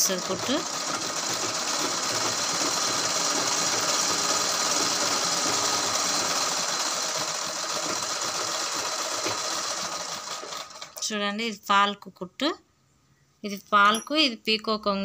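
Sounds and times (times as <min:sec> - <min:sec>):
sewing machine running: 0:00.0 - 0:11.0.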